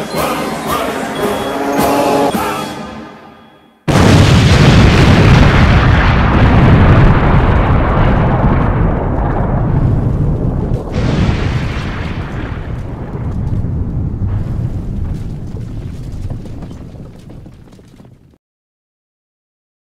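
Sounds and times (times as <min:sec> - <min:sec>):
loud explosion blast: 0:03.9 - 0:17.1
deep rumble: 0:03.9 - 0:18.3.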